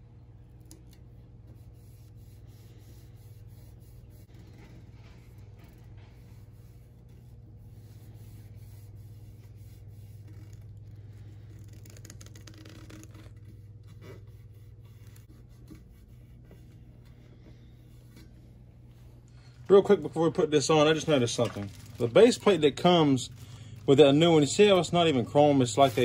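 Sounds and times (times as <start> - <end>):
steady low hum: 0.0 - 26.0
fingers rubbing a vinyl decal: 0.7 - 18.3, 25.5 - 26.0.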